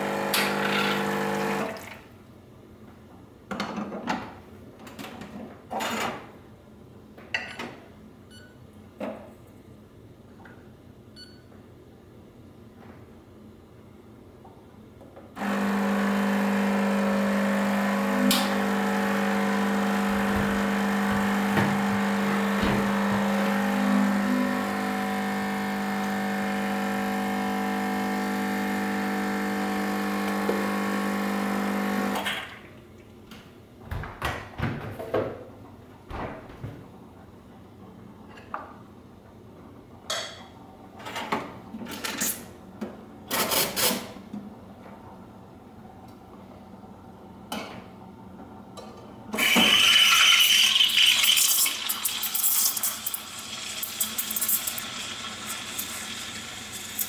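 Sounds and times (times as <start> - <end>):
espresso machine pump humming: 0.0 - 1.7, 15.4 - 32.3, 49.4 - 57.0.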